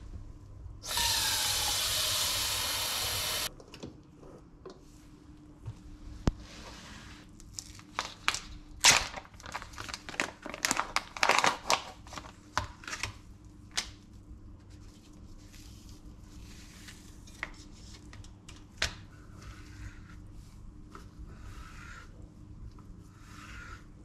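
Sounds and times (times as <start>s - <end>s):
plastic packaging crinkling and tearing: 7.4s - 13.8s.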